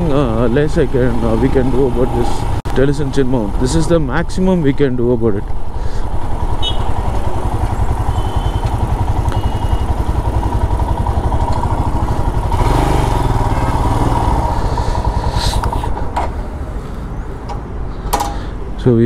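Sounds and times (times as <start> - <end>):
motorcycle engine running: 5.6 - 16.8.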